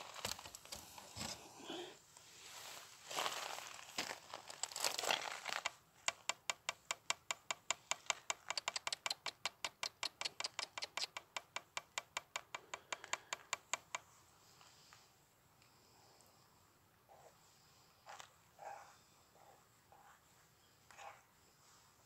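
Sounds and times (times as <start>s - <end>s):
rustling: 0.0s - 6.2s.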